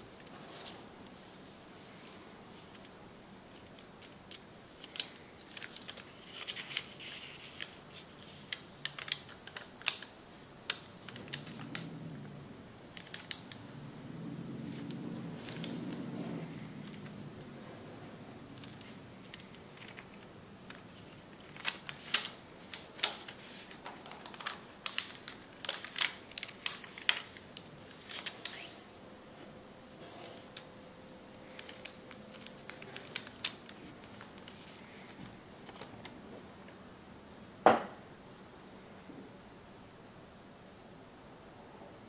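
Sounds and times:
paper rustling: 0:03.5 - 0:11.9, 0:18.6 - 0:28.9, 0:29.9 - 0:36.2
paper crackling while folded: 0:03.5 - 0:12.0, 0:12.9 - 0:13.8, 0:14.6 - 0:17.6, 0:18.5 - 0:28.9, 0:29.9 - 0:36.2
loud paper crack: 0:03.6 - 0:11.9, 0:18.6 - 0:28.9, 0:31.4 - 0:36.1.

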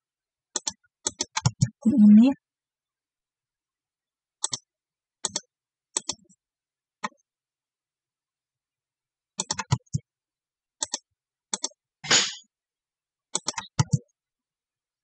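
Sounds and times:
mouse and keyboard clicks: 0:00.5 - 0:01.7, 0:04.4 - 0:06.3, 0:09.4 - 0:10.0, 0:10.8 - 0:12.2, 0:13.3 - 0:14.1.

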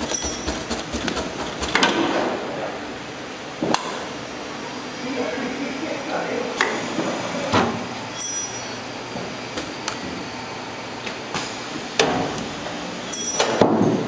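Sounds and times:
sharp clicks and knocks: 0:00.0 - 0:02.2
wrapping machine running: 0:00.0 - 0:03.3.

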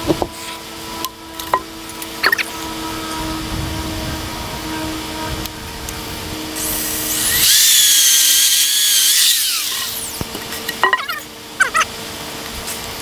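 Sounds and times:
electric drill whining: 0:00.0 - 0:10.3.

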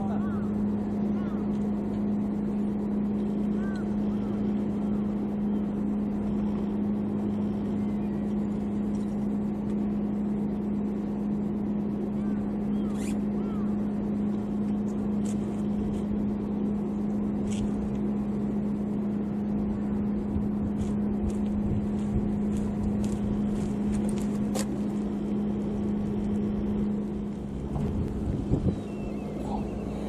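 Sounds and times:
low engine hum: 0:00.0 - 0:30.0.

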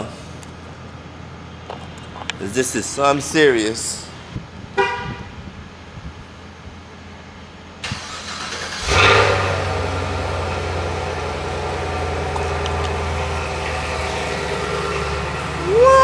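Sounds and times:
car engine starting and idling: 0:06.5 - 0:16.0.

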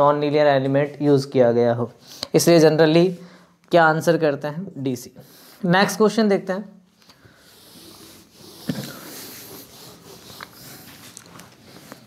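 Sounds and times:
duster wiping whiteboard: 0:07.4 - 0:12.0.

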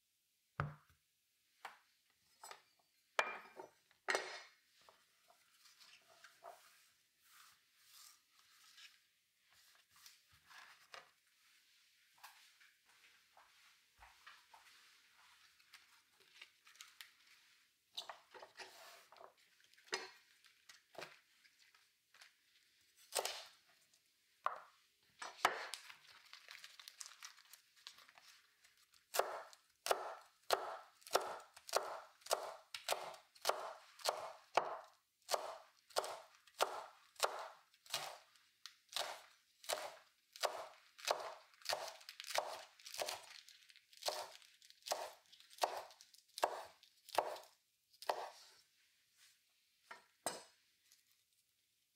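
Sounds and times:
knife chopping on wooden board: 0:29.1 - 0:38.2, 0:39.0 - 0:43.1, 0:44.9 - 0:48.4
kale being torn by hand: 0:37.9 - 0:47.6.

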